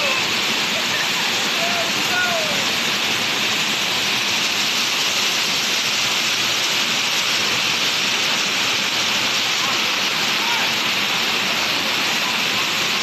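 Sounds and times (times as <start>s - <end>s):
waterfall roaring: 0.0s - 13.0s.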